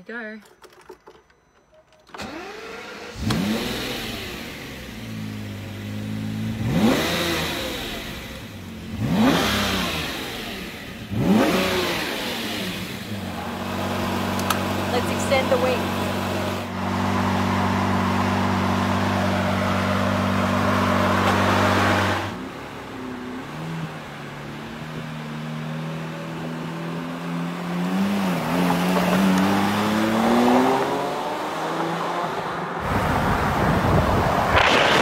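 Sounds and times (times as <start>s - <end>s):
car engine idling and accelerating: 2.2s - 35.0s.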